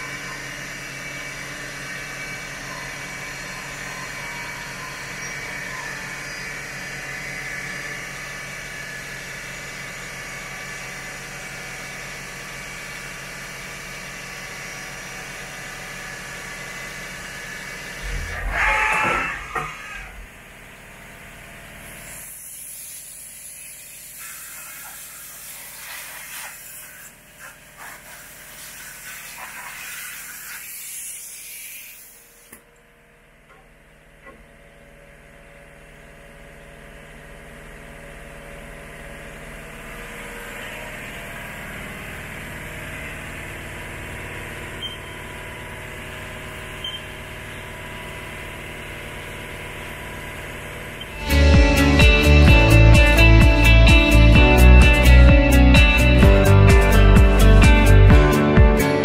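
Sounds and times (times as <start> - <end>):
milling machine mechanical hum: 0.0 - 25.8
spray-like hiss: 22.0 - 32.4.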